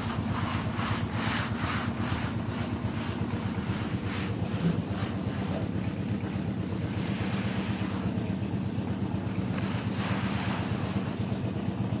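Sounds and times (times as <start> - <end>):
construction machinery engine drone: 0.0 - 12.0.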